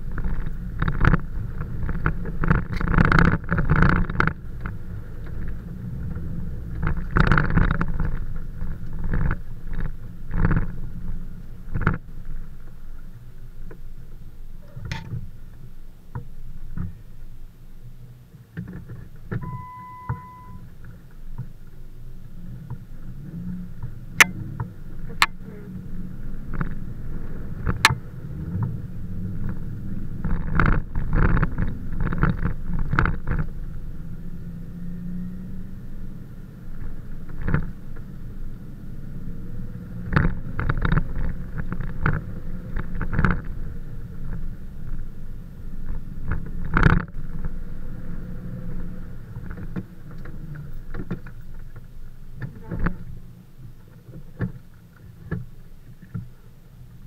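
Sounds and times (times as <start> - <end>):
car engine running at low speed: 0.0 - 57.0.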